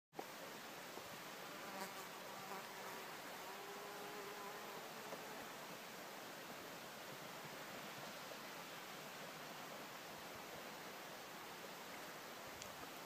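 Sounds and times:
faint steady hiss: 0:00.2 - 0:13.0
flying insect buzzing: 0:01.5 - 0:05.9.

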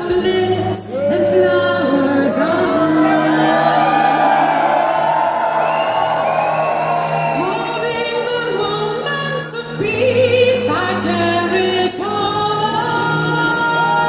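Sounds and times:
people singing: 0:01.0 - 0:04.8.

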